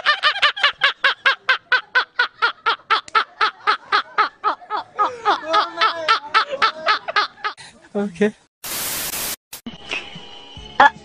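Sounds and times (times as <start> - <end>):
men laughing hard: 0.0 - 7.6.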